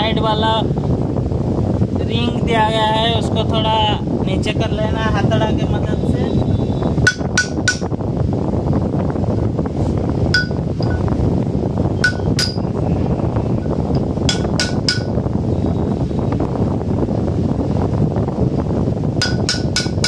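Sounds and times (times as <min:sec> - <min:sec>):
steady low rumble: 0:00.0 - 0:20.0
hammer striking metal punch: 0:07.1 - 0:07.9, 0:10.4 - 0:11.0, 0:12.0 - 0:12.7, 0:14.3 - 0:15.2, 0:19.2 - 0:20.0.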